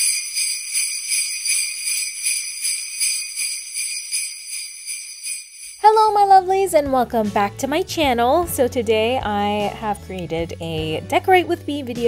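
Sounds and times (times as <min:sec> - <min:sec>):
jingle bells shaken: 0:00.0 - 0:06.2.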